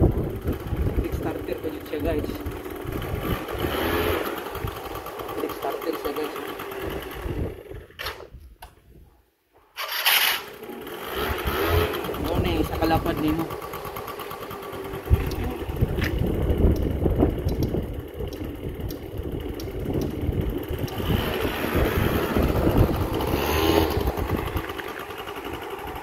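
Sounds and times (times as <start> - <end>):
small scooter engine running: 0.0 - 8.1, 9.8 - 26.0
sharp click: 16.0 - 19.0.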